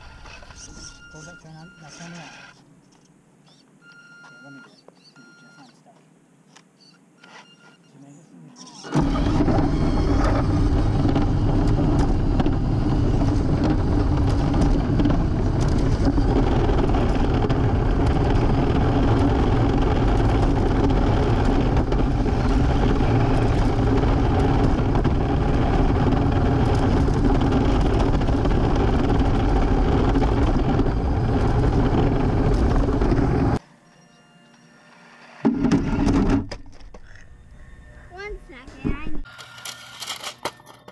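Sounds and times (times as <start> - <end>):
electric motor whir: 8.6 - 38.5
wheels rumbling on pavement: 8.9 - 33.6, 35.4 - 37.6.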